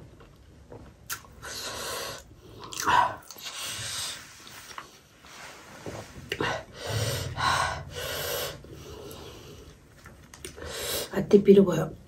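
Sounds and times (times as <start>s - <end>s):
person breathing hard: 6.4s - 9.8s.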